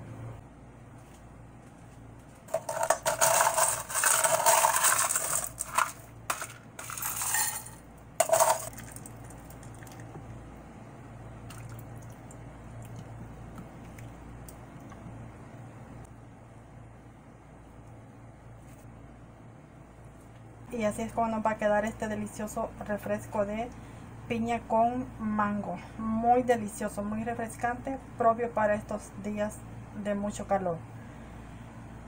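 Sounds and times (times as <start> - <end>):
ice cubes clattering into glasses: 2.5 - 9.1.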